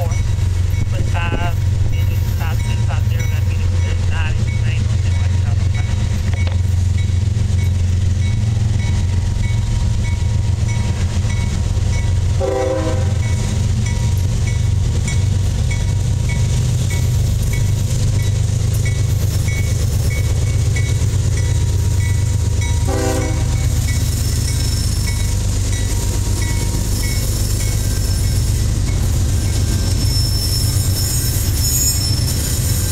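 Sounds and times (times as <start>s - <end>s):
crossing bell ringing: 0.0s - 32.9s
diesel locomotive engine drone: 0.0s - 32.9s
train horn blasts: 12.4s - 13.3s, 22.8s - 23.7s.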